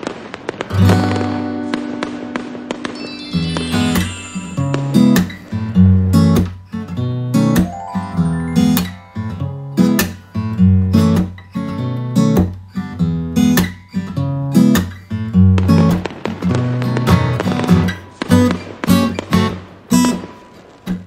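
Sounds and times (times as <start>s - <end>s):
acoustic guitar strumming: 1.3s - 15.9s.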